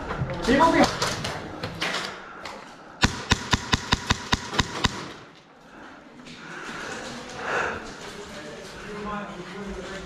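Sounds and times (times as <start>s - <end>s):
airsoft gun shots: 3.0s - 5.3s.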